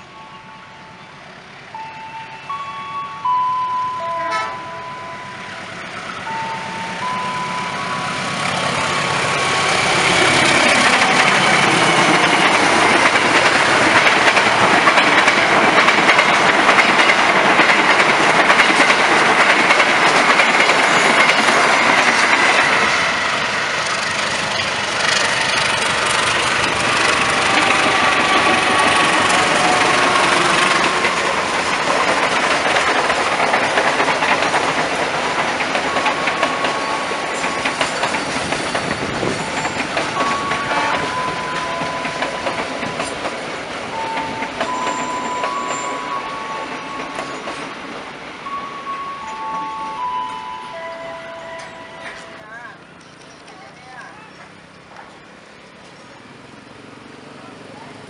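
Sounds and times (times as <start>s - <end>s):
electronic chime notes: 1.8s - 5.6s, 6.2s - 8.3s, 48.5s - 52.4s
train wheels clattering on rails: 7.8s - 50.8s.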